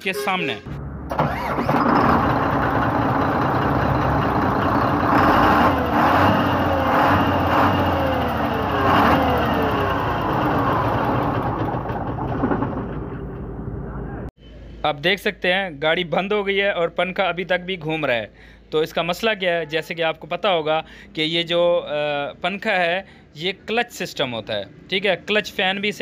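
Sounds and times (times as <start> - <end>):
diesel truck engine running: 0.7 - 14.3.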